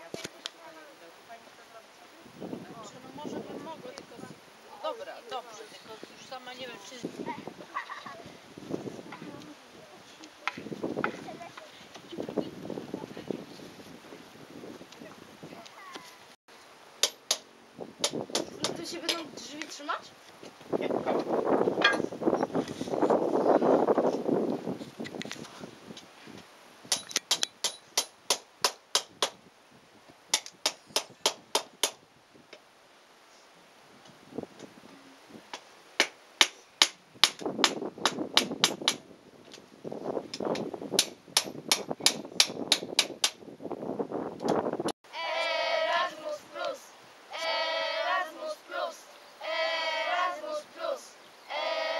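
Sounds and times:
children singing: 0:45.1 - 0:51.9.

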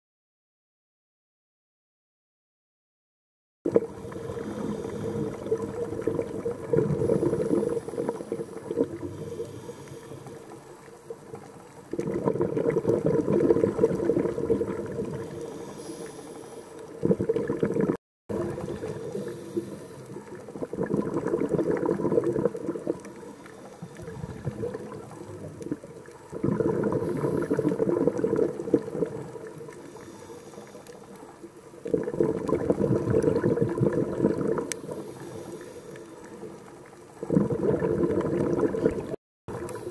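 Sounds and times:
underwater breath bubbling: 0:03.7 - 0:39.9
diver inhaling: 0:03.8 - 0:06.0, 0:06.7 - 0:10.7, 0:15.2 - 0:17.0, 0:18.6 - 0:20.6, 0:23.0 - 0:24.7, 0:26.6 - 0:28.2, 0:29.8 - 0:31.2, 0:34.7 - 0:36.4.

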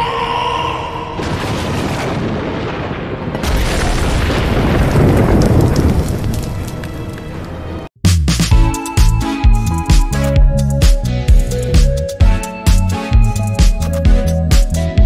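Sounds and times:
fiery explosion with deep rumble: 0:01.2 - 0:07.0.

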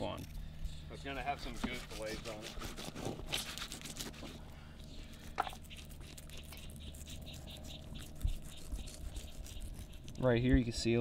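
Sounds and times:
steady low hum: 0:00.0 - 0:11.0
knife rasping through fish: 0:01.4 - 0:04.4, 0:05.1 - 0:10.3.

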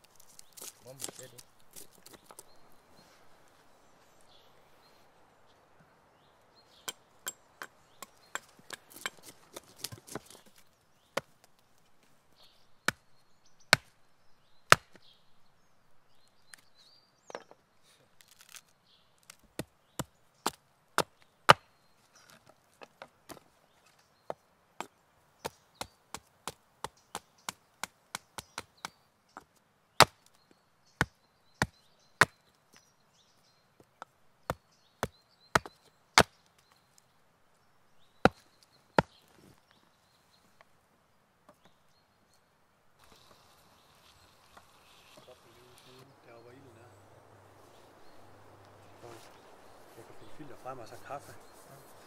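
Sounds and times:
axe chopping wood: 0:14.7 - 0:15.0, 0:30.0 - 0:30.3, 0:34.5 - 0:36.4.

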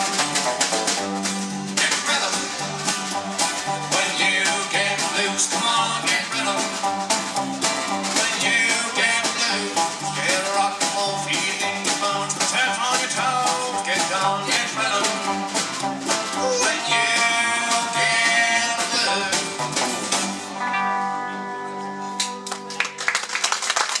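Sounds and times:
plucked double bass: 0:00.0 - 0:20.6
drum kit: 0:00.0 - 0:20.8
acoustic guitar strumming: 0:00.0 - 0:22.5.

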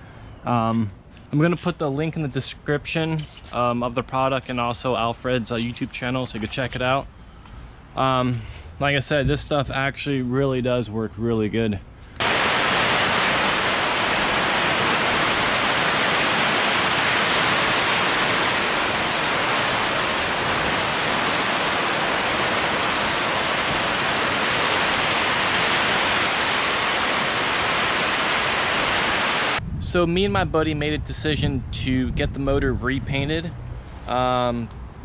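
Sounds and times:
heavy rain on tent roof: 0:12.2 - 0:29.6.

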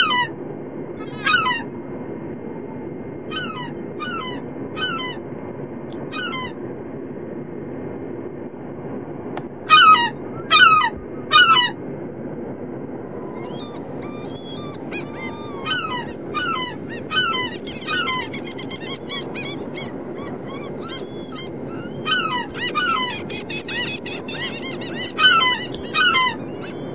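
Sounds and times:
seagulls calling: 0:00.0 - 0:00.4, 0:01.0 - 0:01.7, 0:03.3 - 0:05.2, 0:06.1 - 0:06.6, 0:09.7 - 0:11.8, 0:13.2 - 0:26.9
steady low background noise: 0:00.0 - 0:26.9.

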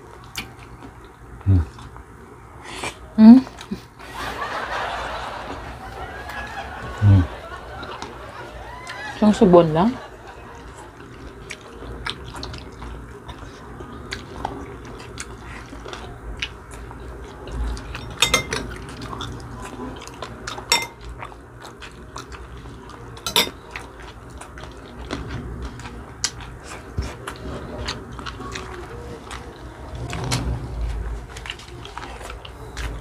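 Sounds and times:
chewing and mouth sounds: 0:00.0 - 0:02.1, 0:10.4 - 0:33.0
spoon clinking on plates: 0:18.2 - 0:18.7, 0:20.7 - 0:21.1, 0:23.3 - 0:23.6.

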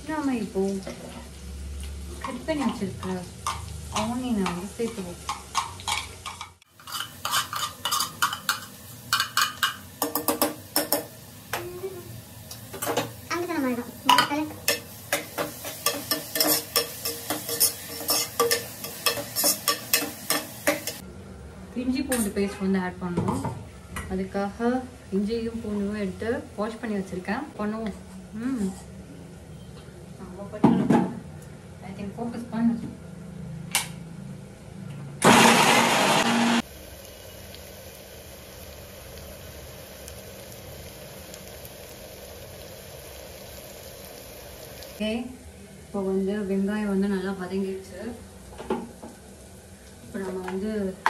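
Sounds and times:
onions sizzling in oil: 0:00.0 - 0:21.0, 0:35.2 - 0:51.0
ladle scraping pot: 0:05.5 - 0:08.6
mixer grinder grinding: 0:35.2 - 0:36.6.

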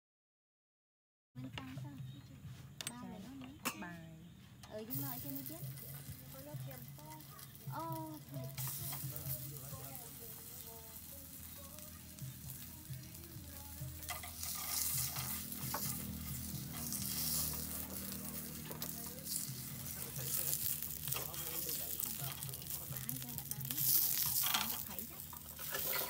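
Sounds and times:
food sizzling in a pan: 0:04.9 - 0:26.0
stirring scrapes and taps: 0:13.8 - 0:26.0.

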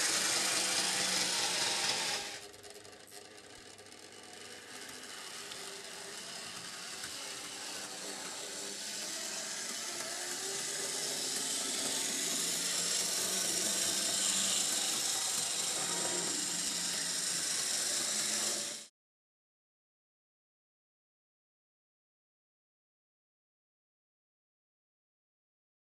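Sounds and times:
model tram motor whirring: 0:00.0 - 0:18.9.

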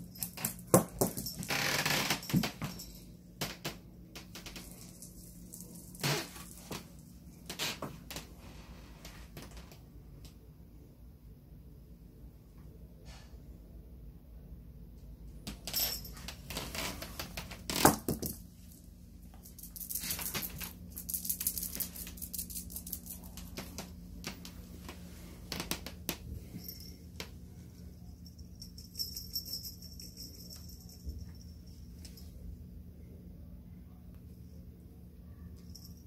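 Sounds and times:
kitten playing with rattling toys: 0:00.0 - 0:08.0, 0:15.4 - 0:32.4.

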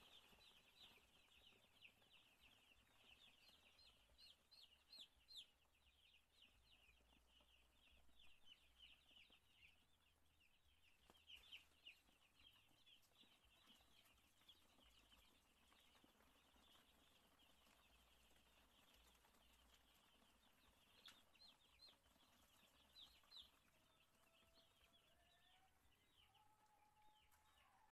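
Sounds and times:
chicks peeping: 0:00.0 - 0:27.9.

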